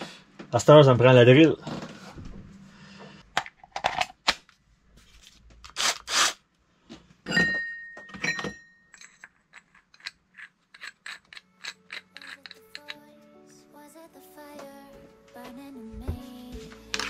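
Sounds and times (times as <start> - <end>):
knocks and scrapes of handling: 9.0 - 13.0.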